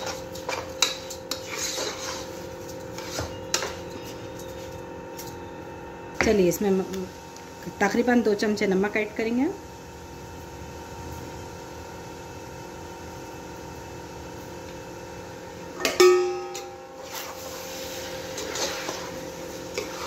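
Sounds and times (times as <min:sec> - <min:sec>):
spoon stirring rice in pot: 0:00.0 - 0:04.7, 0:17.0 - 0:20.0.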